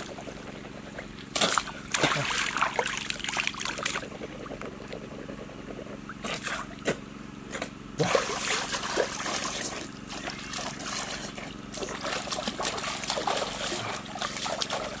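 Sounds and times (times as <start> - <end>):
small water splashes: 1.2 - 4.9, 8.0 - 15.0
stream water trickling: 1.2 - 5.0, 8.0 - 15.0.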